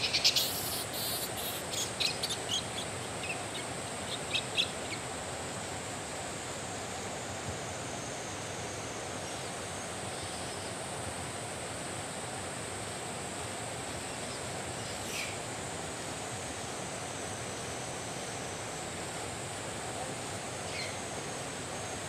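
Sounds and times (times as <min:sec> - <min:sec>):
outdoor background hiss: 0:00.0 - 0:22.0.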